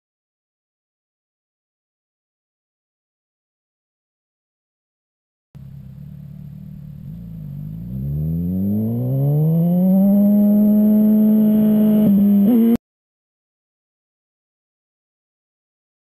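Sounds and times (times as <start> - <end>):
motorcycle engine accelerating: 5.6 - 12.8.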